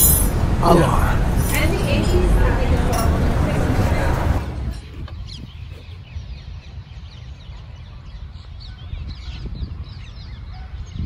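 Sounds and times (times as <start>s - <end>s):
small birds chirping: 4.7s - 11.0s.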